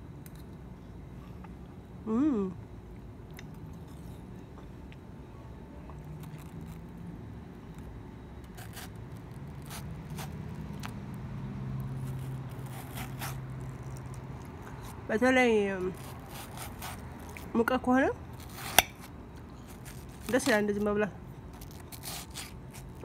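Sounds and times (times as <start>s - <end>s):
low steady hum: 0.0s - 23.0s
spoon scraping watermelon: 12.0s - 15.0s, 15.9s - 17.7s, 18.4s - 21.0s, 21.6s - 23.0s.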